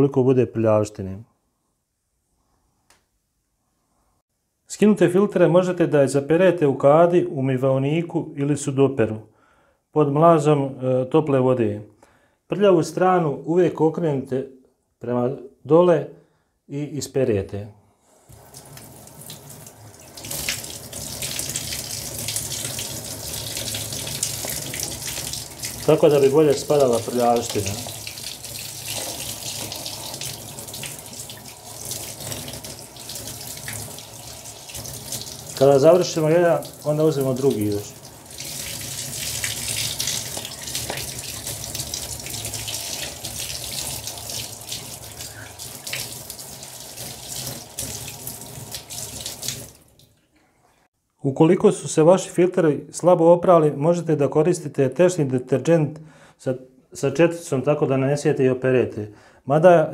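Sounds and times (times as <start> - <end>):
water splashing through filter mesh: 18.3 - 50.2.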